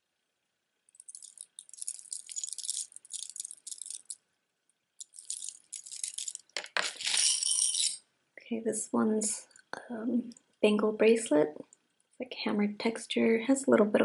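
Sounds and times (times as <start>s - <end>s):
metal necklace segments clinking: 1.0s - 4.2s, 5.0s - 8.0s.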